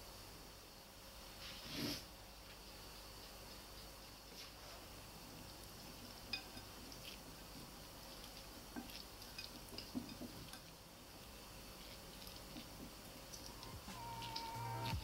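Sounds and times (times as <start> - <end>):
soft wet stirring: 2.4 - 15.0.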